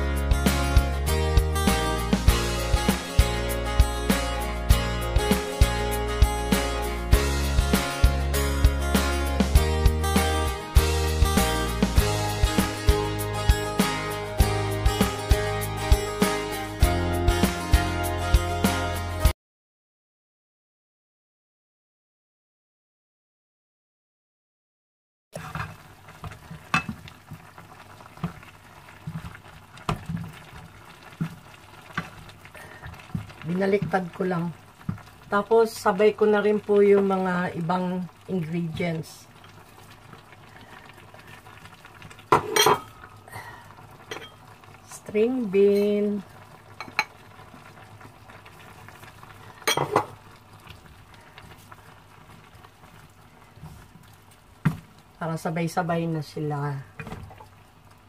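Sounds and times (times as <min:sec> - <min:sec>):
stock bubbling and sizzling: 0:25.4 - 0:55.7, 0:56.9 - 0:58.0
pan simmering hiss: 0:25.4 - 0:58.0.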